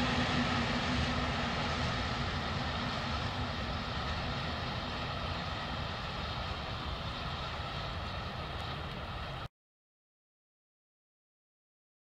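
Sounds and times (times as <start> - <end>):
freight train rumbling: 0.0 - 9.5.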